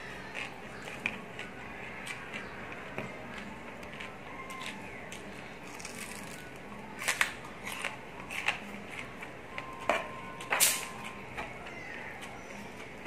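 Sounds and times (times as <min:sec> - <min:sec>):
crunchy chewing: 0:00.0 - 0:09.3.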